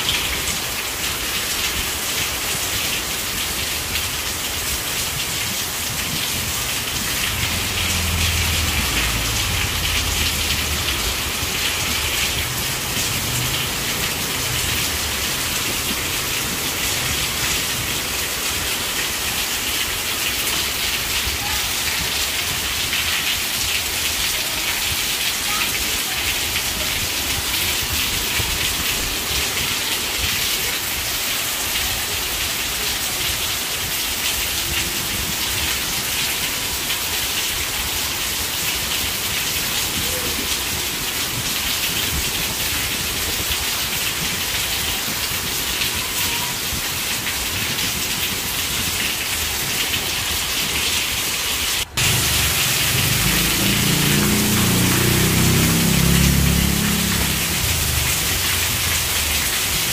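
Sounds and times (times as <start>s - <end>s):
heavy rain: 0.0s - 59.9s.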